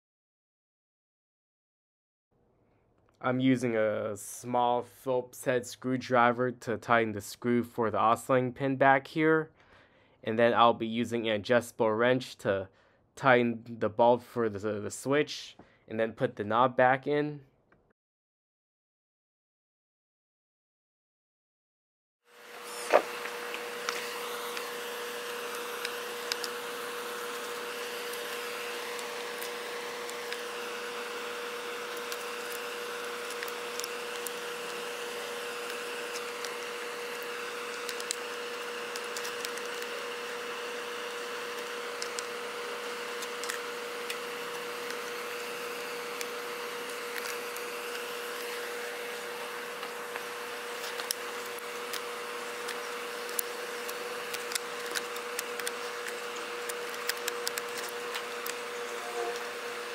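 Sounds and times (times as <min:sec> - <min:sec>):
steady mechanical hum: 0:22.4 - 0:59.9.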